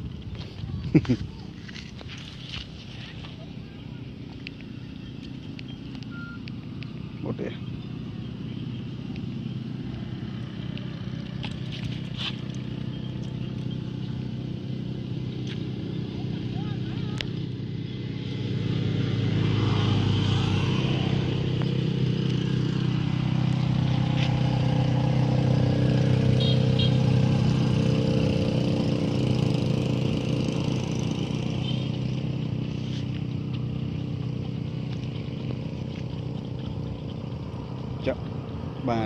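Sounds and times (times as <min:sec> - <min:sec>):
motor engine humming: 0:00.0 - 0:39.0.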